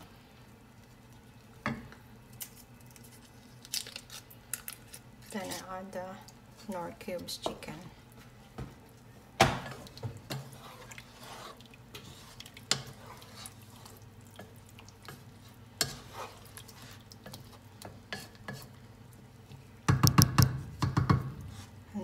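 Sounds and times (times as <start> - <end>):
wet stirring in a pot: 2.4 - 22.0
spatula knocking against metal pot: 19.9 - 21.3.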